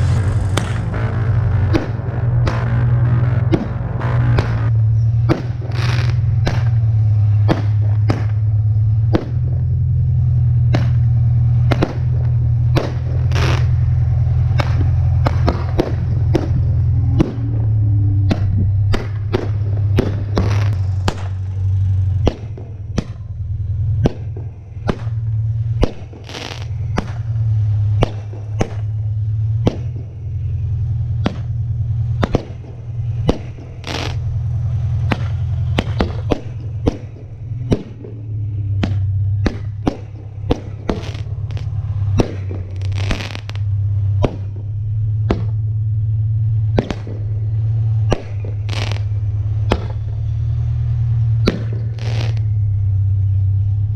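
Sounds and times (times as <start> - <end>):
steady low hum: 0.0 - 53.9
firework shells popping: 10.7 - 17.6, 18.3 - 21.4, 24.0 - 27.4, 31.2 - 38.2, 38.8 - 44.7, 48.1 - 50.0, 51.4 - 52.6.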